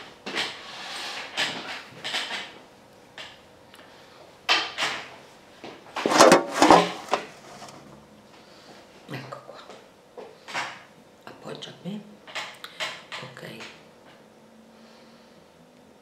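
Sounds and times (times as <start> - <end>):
chair scraping: 6.0 - 7.9.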